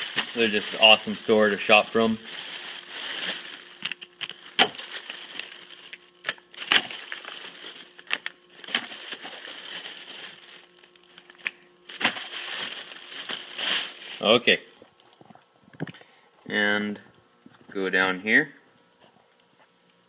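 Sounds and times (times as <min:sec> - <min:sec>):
plastic bag crinkling: 0:00.0 - 0:14.5.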